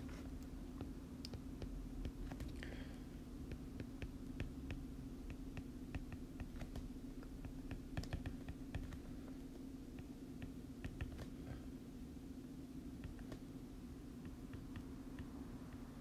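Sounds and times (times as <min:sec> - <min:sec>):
steady low hum: 0:00.0 - 0:16.0
stylus tapping on tablet screen: 0:00.7 - 0:02.6, 0:03.4 - 0:11.4, 0:13.0 - 0:13.5, 0:14.2 - 0:16.0.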